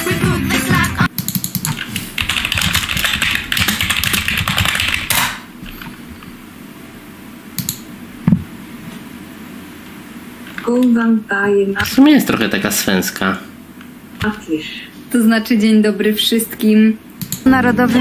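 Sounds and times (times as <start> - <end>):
computer keyboard typing: 1.2 - 5.4
sharp clicks: 7.6 - 7.8, 17.2 - 17.5.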